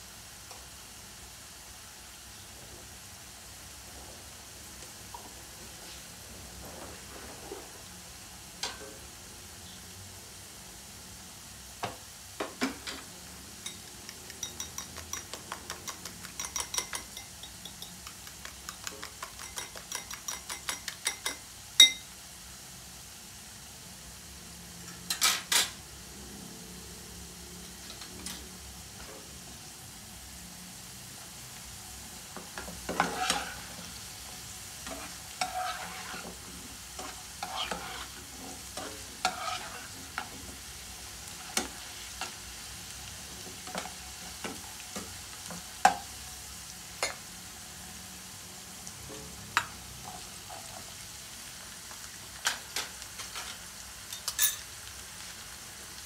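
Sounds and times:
potatoes sizzling in oil: 0.0 - 56.0
spatula scraping a pan: 32.4 - 40.7, 41.3 - 42.4.

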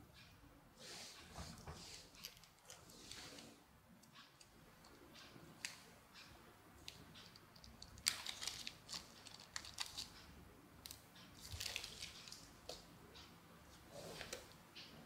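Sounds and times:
plastic packet crinkling: 7.9 - 10.2, 11.4 - 12.4.

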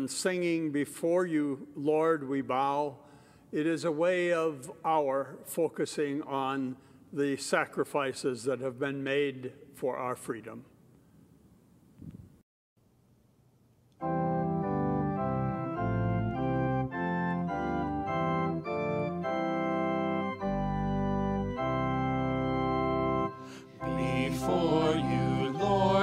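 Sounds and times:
organ playing held chords: 14.0 - 26.0
singers singing a hymn: 23.3 - 26.0.

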